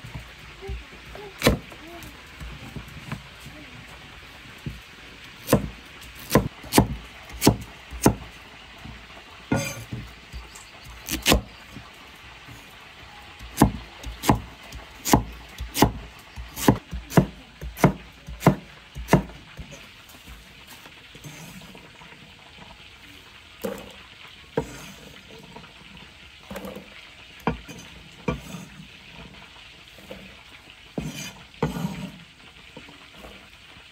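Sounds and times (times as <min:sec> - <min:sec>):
cleaver chopping on wooden block: 0:15.0 - 0:19.3.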